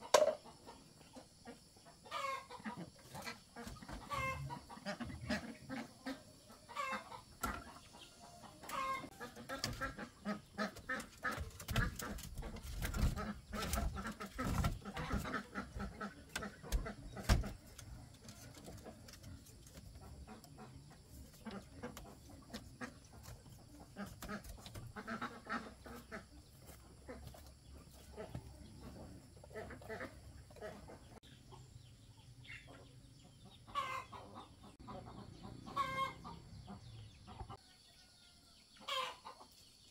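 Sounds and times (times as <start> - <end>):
chickens clucking: 0.0 - 39.9
bamboo strips clattering: 10.9 - 15.4.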